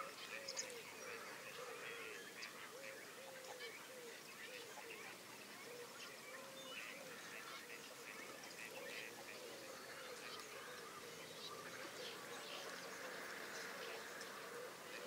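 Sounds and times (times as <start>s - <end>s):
geese and ducks calling: 0.0s - 15.0s
distant road noise hum: 11.0s - 15.0s.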